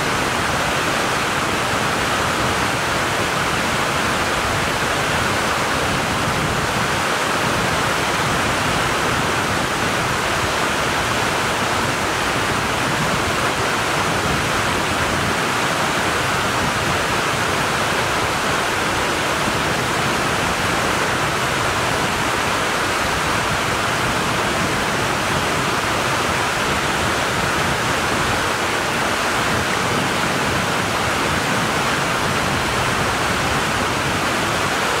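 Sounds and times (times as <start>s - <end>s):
mountain stream rushing over rocks: 0.0s - 35.0s.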